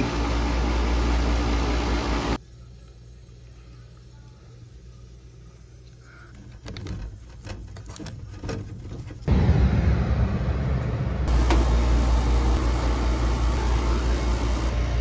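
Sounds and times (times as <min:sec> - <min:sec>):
handling clicks and rustles: 0:05.9 - 0:09.3
air conditioner rushing noise: 0:09.2 - 0:15.0.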